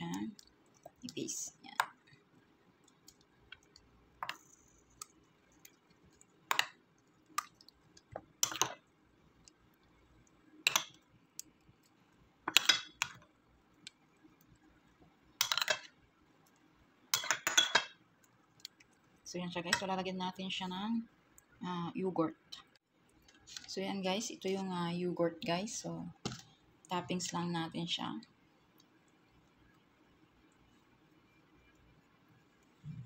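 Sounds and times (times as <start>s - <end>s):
spoon tapping and scraping bowl: 3.1s - 6.8s, 7.4s - 8.8s, 10.6s - 11.0s, 12.5s - 13.2s, 15.4s - 15.9s, 17.1s - 18.0s.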